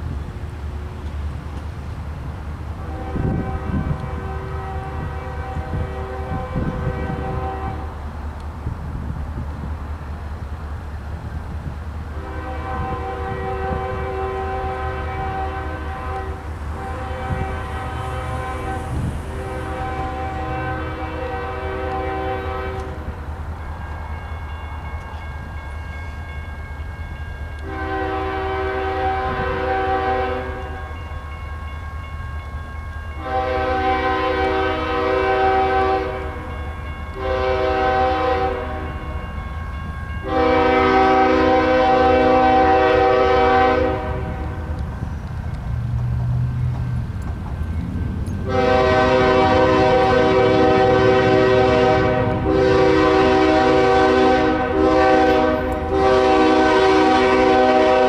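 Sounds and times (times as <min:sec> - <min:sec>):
low train rumble: 0:00.0 - 0:58.0
locomotive air horn blasts: 0:02.8 - 0:08.0, 0:12.1 - 0:23.2, 0:27.6 - 0:31.0, 0:33.2 - 0:39.2, 0:40.2 - 0:44.8, 0:48.4 - 0:58.0.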